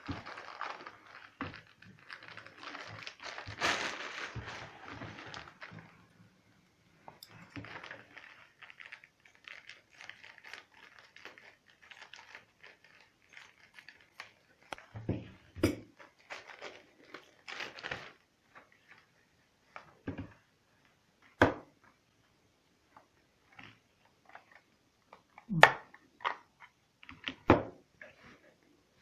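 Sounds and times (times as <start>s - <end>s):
hands rustling plastic parts: 0.0s - 6.2s, 7.0s - 19.1s.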